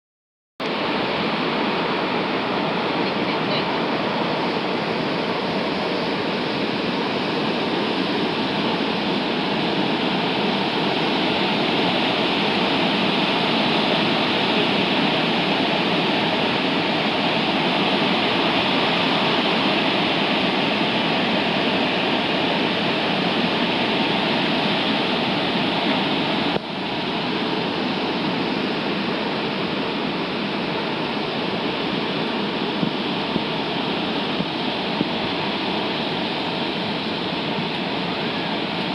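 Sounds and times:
waterfall roar: 0.6 - 38.9.

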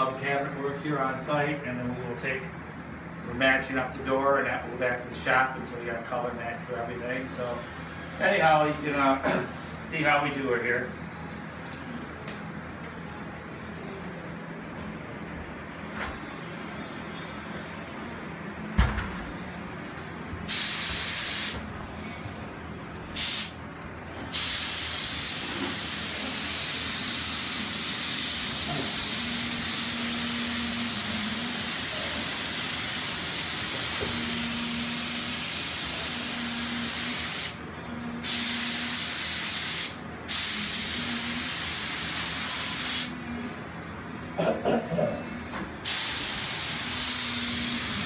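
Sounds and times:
spray gun hissing: 20.5 - 21.6, 23.2 - 23.6, 24.3 - 37.6, 38.2 - 43.1, 45.8 - 48.0.

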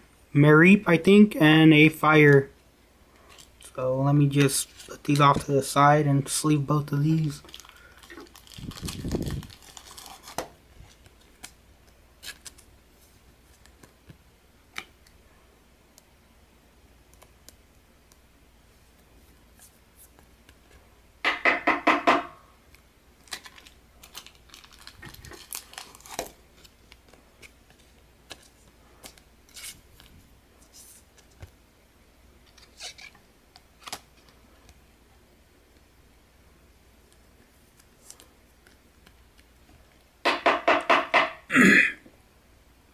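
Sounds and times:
card sleeves clicking and rustling: 7.2 - 12.7, 23.2 - 31.6.

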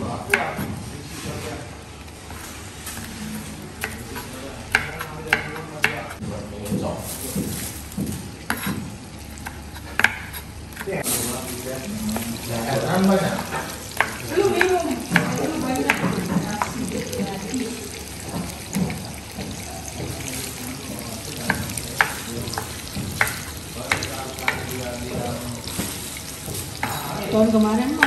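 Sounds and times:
knife chopping on wooden board: 3.8 - 6.2, 7.3 - 11.0, 13.4 - 16.8, 21.4 - 27.0
food sizzling in oil: 7.0 - 28.0.

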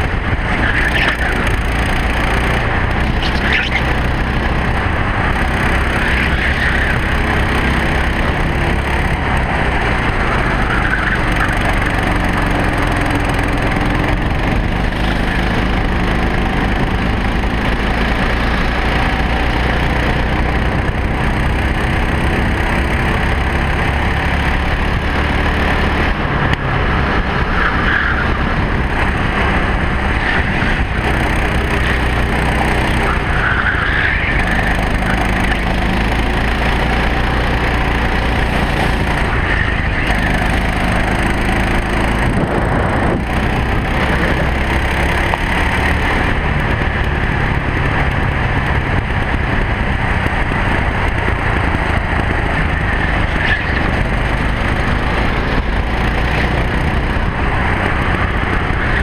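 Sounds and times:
kart engine revving: 0.0 - 59.0.

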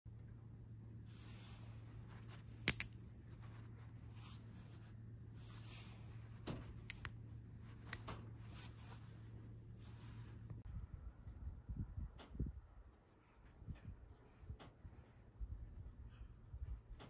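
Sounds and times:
knife blade snapping: 2.6 - 3.0
knife lock clicks: 2.6 - 3.0, 6.8 - 7.2.

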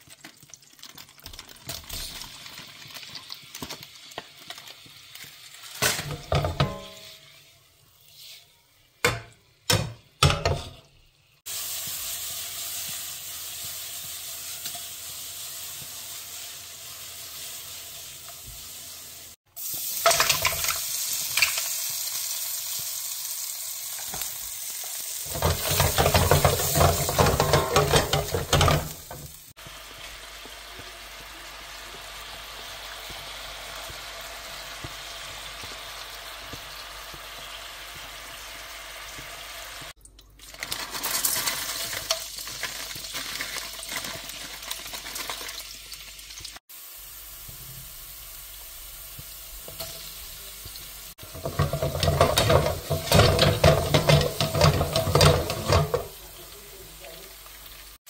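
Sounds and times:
food sizzling in frying pan: 0.0 - 58.0
utensil knocking on pan: 25.3 - 29.2, 51.2 - 56.1.

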